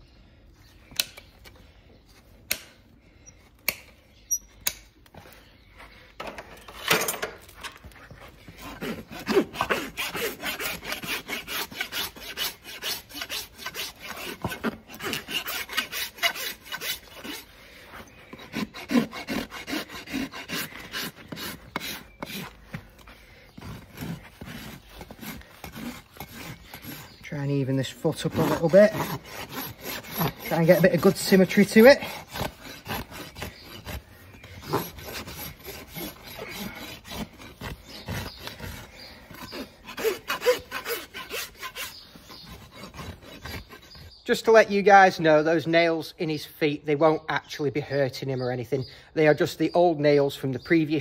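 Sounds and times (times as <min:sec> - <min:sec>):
rasp filing a hoof: 0:02.1 - 0:44.6
sharp clicks: 0:04.6 - 0:04.9.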